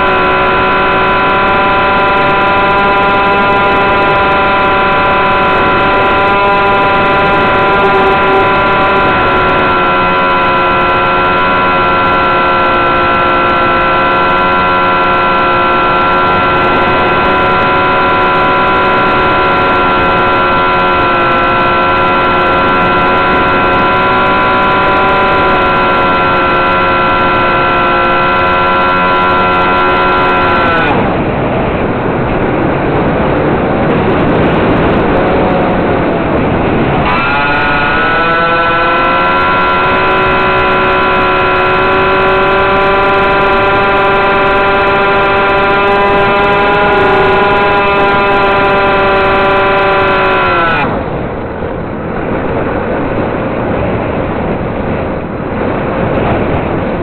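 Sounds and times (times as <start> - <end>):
model plane motor whine: 0.0 - 51.2.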